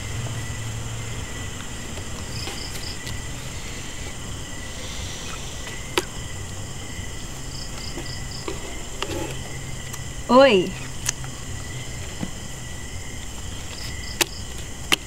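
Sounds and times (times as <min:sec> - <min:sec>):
low hum: 0:00.0 - 0:13.7
crickets chirping: 0:00.0 - 0:15.0.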